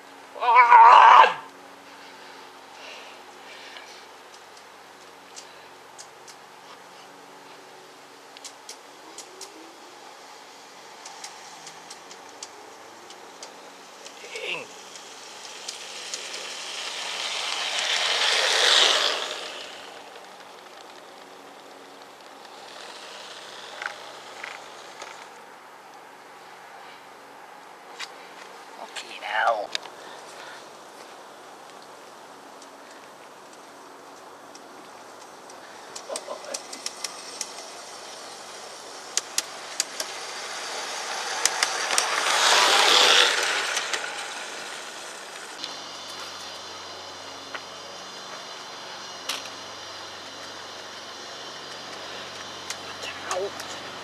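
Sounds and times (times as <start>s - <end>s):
model locomotive running on track: 10.2s - 25.4s, 35.4s - 54.0s
sharp clicks: 11.0s - 14.2s, 34.2s - 37.8s.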